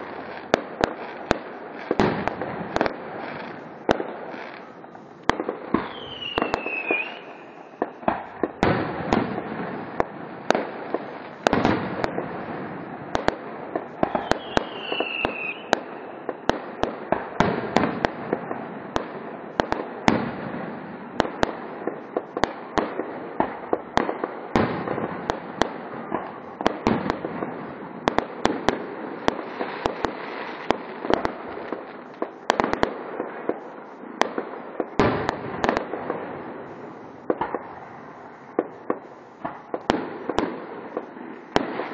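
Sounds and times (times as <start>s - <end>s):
fireworks bursting with sharp bangs: 0.0s - 41.9s
falling firework whistle: 5.8s - 8.0s, 14.0s - 15.9s.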